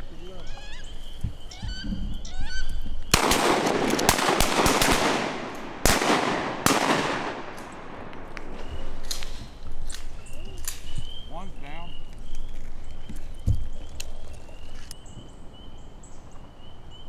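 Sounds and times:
high bird calls: 0:00.0 - 0:03.4, 0:08.2 - 0:17.0
shotgun blasts with echo: 0:03.1 - 0:08.6.

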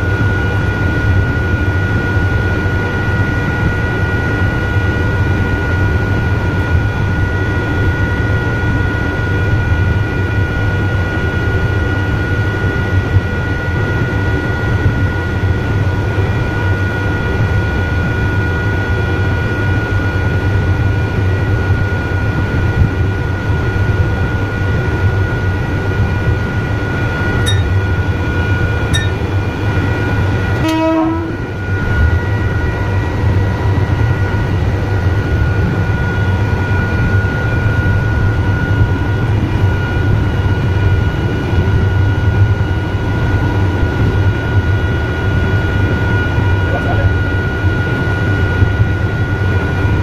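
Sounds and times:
train rumble: 0:00.0 - 0:44.5, 0:45.2 - 0:50.0
high electric whine: 0:25.1 - 0:41.8
brief pitched sound: 0:27.5 - 0:27.8, 0:28.9 - 0:29.2
short beeps: 0:27.5 - 0:27.8, 0:28.9 - 0:29.2.

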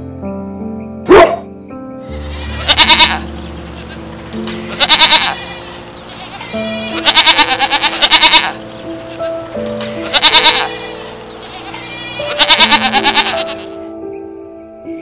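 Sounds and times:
background music: 0:00.0 - 0:15.0
sharp animal call: 0:01.1 - 0:01.5, 0:02.1 - 0:13.8
wavering animal calls: 0:02.1 - 0:13.9.

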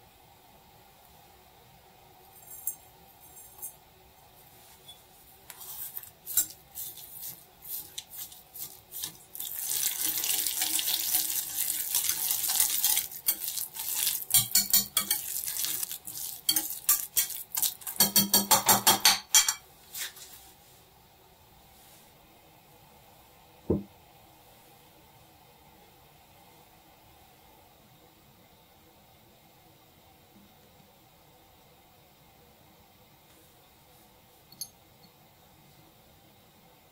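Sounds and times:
spoon stirring in small bowl: 0:05.5 - 0:19.6
utensils clinking on dishes: 0:05.6 - 0:07.1, 0:10.0 - 0:19.6
liquid pouring: 0:07.9 - 0:18.1.

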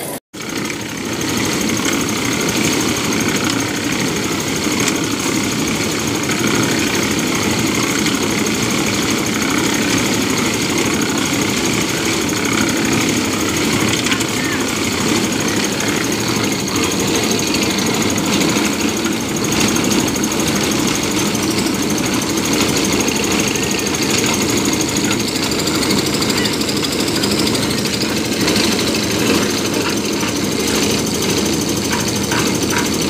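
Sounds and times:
concrete mixer engine chugging: 0:00.0 - 0:33.0
drum churning wet concrete: 0:00.0 - 0:33.0.

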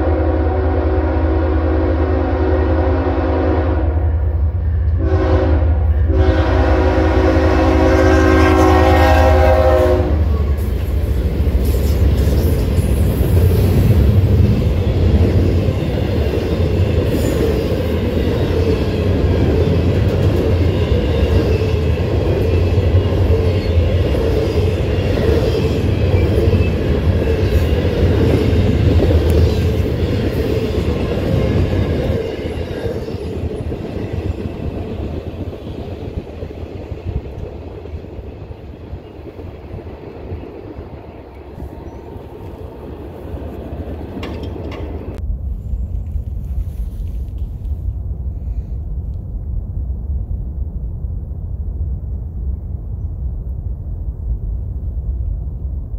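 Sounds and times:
locomotive horn chord: 0:00.0 - 0:04.2, 0:04.9 - 0:10.6
train rumbling and clattering past: 0:00.0 - 0:55.9.

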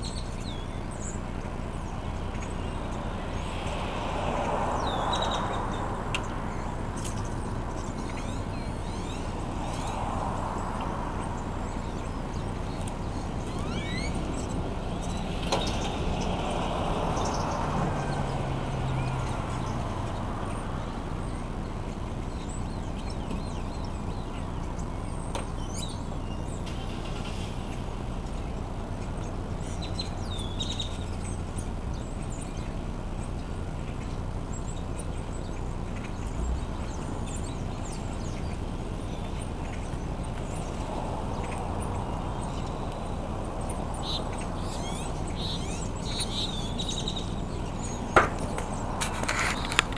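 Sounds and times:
outdoor background noise: 0:00.0 - 0:49.9
vehicle engine passing: 0:00.4 - 0:22.3, 0:34.4 - 0:49.9.

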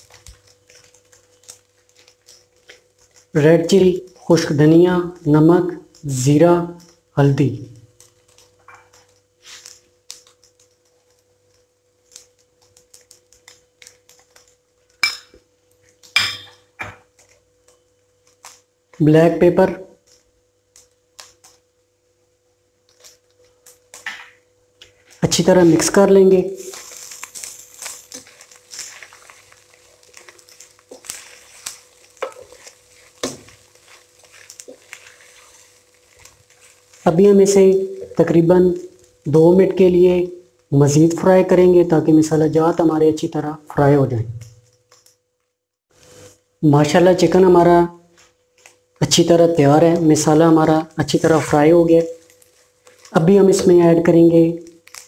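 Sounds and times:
faint frying sizzle: 0:00.0 - 0:55.0
spatula scraping a pot: 0:26.6 - 0:37.1.

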